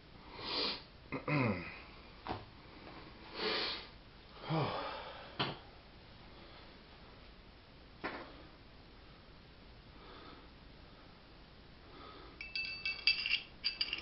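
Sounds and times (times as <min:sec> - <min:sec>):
person sniffing: 0:03.3 - 0:03.9.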